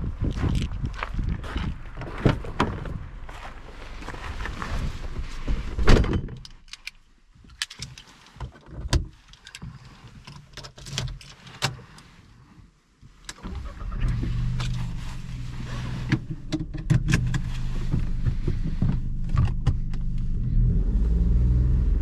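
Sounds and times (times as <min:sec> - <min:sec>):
car engine starting and idling: 0:13.2 - 0:22.0.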